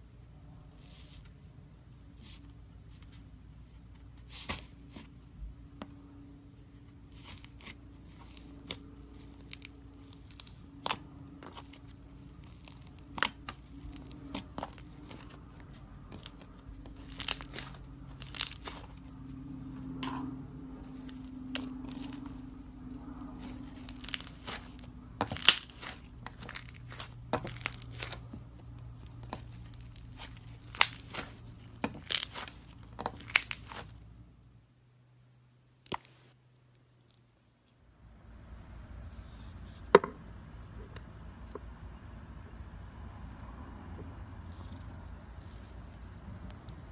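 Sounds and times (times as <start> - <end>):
steady low hum: 0.0 - 35.3
slime crackling and popping: 8.2 - 15.5, 16.1 - 19.1, 23.4 - 28.3, 29.1 - 33.9.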